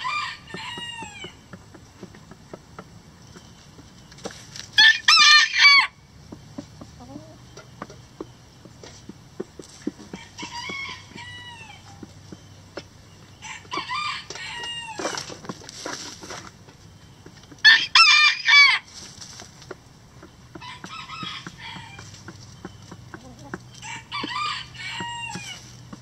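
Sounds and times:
roosters crowing: 0.0 - 2.1, 4.8 - 8.6, 9.6 - 16.3, 17.5 - 19.2, 20.2 - 26.0
hens pecking and scratching: 0.0 - 26.0.

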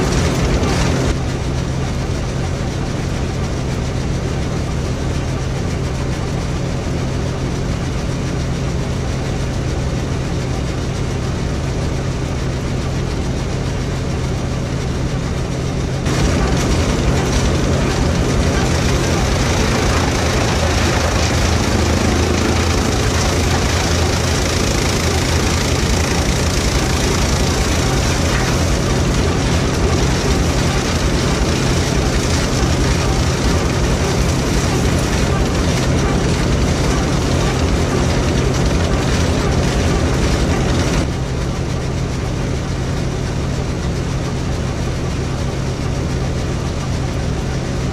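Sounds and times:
tractor engine running: 0.0 - 47.9
corn chopper chopping stalks: 16.1 - 41.0.

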